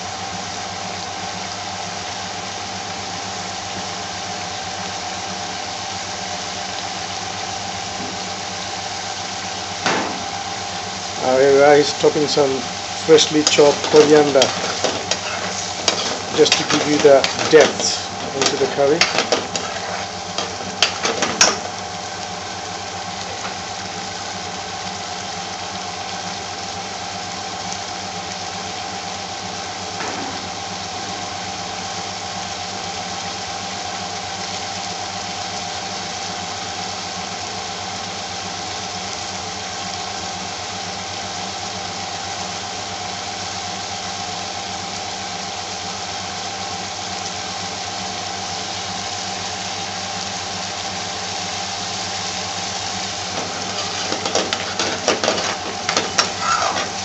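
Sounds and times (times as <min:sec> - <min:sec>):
curry bubbling in a pan: 0:00.0 - 0:57.0
steady mechanical hum: 0:00.0 - 0:57.0
spoon scraping a pan: 0:13.2 - 0:21.8, 0:53.3 - 0:57.0.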